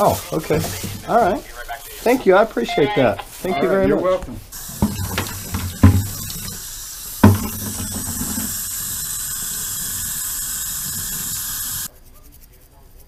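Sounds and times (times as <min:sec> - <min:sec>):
water running from faucet: 0:00.0 - 0:01.4, 0:02.0 - 0:11.9
thump: 0:04.2 - 0:06.5, 0:07.2 - 0:08.6.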